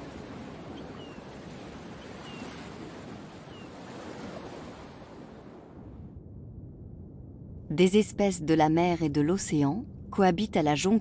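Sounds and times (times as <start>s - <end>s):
sea surf washing: 0.0s - 5.7s.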